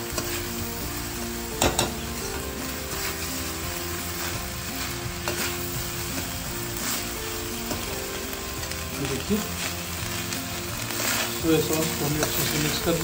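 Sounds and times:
fried rice sizzling in a pan: 0.0s - 13.0s
metal spatula scraping pan: 1.6s - 7.1s, 10.8s - 13.0s.

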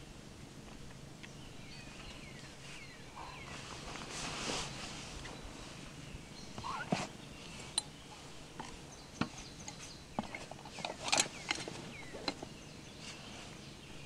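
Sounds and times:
bird chirps: 1.3s - 3.6s, 5.2s - 14.0s.

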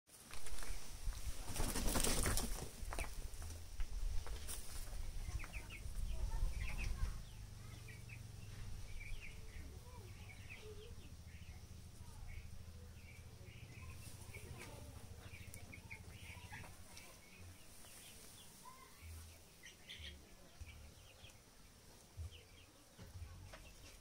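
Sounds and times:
wings flapping and scuffling: 0.1s - 7.3s, 9.6s - 20.0s.

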